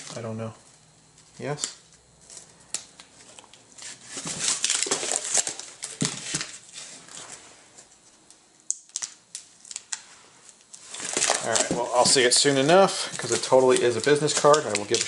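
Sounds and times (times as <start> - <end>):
cardboard rustling and scraping: 3.2 - 7.9, 10.8 - 15.0.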